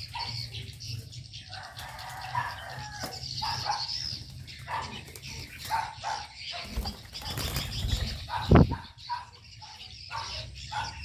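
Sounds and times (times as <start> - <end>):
birds chirping and calling: 0.0 - 11.0
wings flapping: 6.6 - 8.7.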